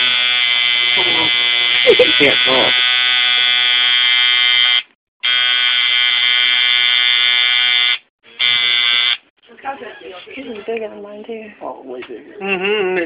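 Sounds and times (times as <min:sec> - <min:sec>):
tattoo machine buzzing: 0:00.0 - 0:09.2.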